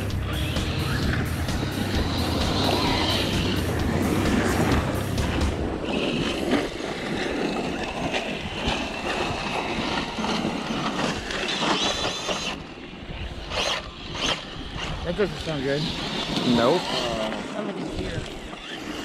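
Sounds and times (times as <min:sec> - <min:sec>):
rushing noise: 0:00.0 - 0:12.0
rc car motor whine: 0:00.0 - 0:19.0.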